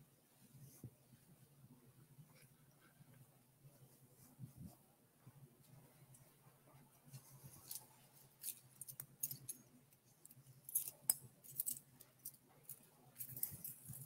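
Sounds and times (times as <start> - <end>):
light clicks and rustles: 5.6 - 14.0.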